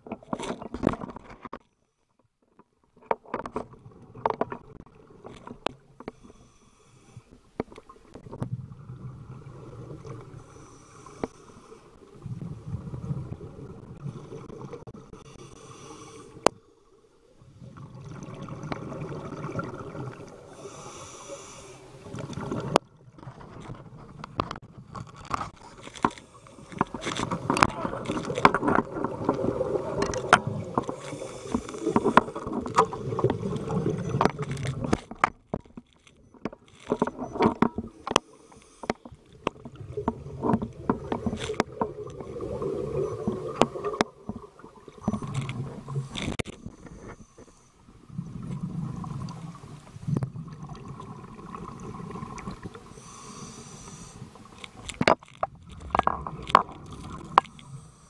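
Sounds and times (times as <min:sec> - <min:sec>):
muffled underwater gurgling: 0:39.5 - 0:47.4.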